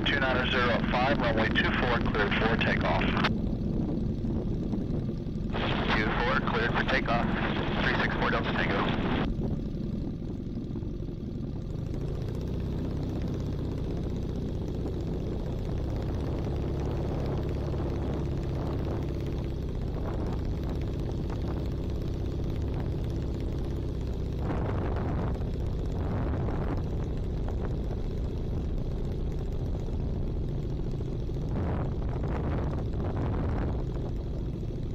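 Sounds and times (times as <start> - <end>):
rush of noise: 0.0 - 3.3, 5.5 - 9.3
small aircraft engine running: 0.0 - 34.9.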